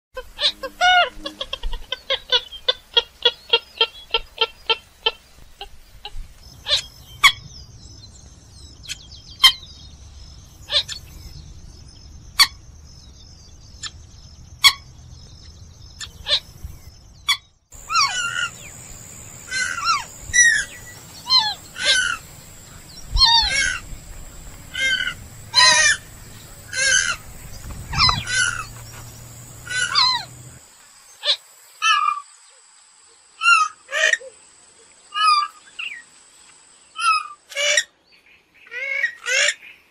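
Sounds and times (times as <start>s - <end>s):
bird calls: 0.2s - 32.2s
steady high-pitched tone: 17.8s - 30.9s.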